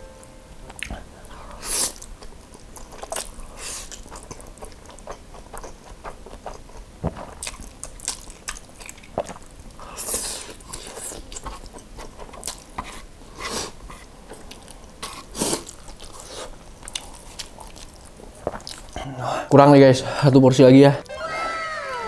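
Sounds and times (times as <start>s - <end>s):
wet chewing and lip smacks: 1.9s - 12.8s, 14.3s - 19.0s.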